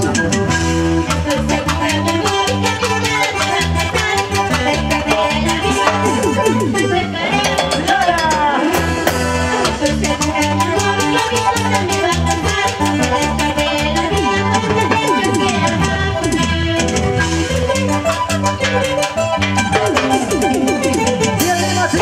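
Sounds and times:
live band music: 0.0 - 22.0
girl singing into a microphone: 1.3 - 8.6, 9.8 - 17.2.

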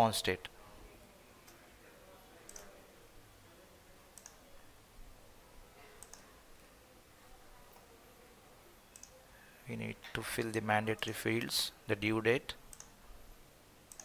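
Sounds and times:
computer mouse clicks: 2.5 - 2.7, 4.2 - 4.4, 6.0 - 6.3, 8.9 - 9.2, 12.7 - 13.0.

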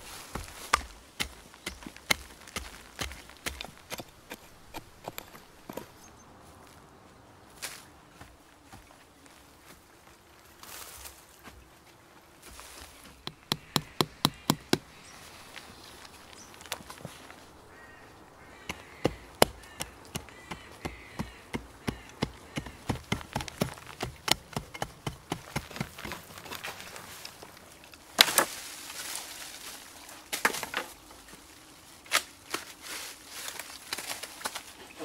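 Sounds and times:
shovel scraping: 0.0 - 6.0
shovel chopping into soil: 0.2 - 5.9, 13.2 - 15.0, 18.6 - 26.8
scattered knocks: 13.2 - 14.8.

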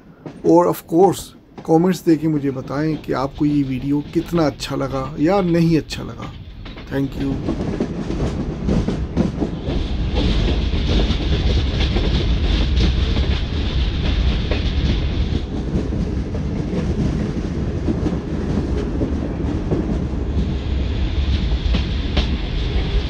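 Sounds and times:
train rumbling: 0.0 - 23.0
wheels clacking over rail joints: 0.1 - 23.0.

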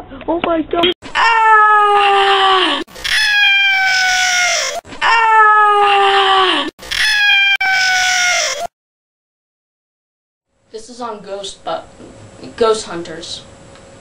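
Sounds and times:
person screaming: 1.0 - 8.7.

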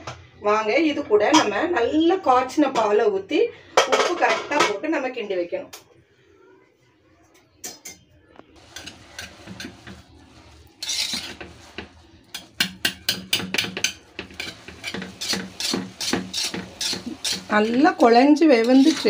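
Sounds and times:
metal spoon scraping a pot: 8.6 - 19.0
spoon clinking: 18.6 - 19.0.

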